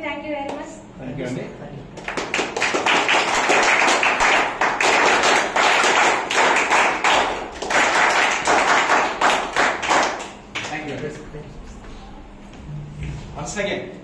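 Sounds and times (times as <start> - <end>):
audience applauding: 2.0 - 11.0.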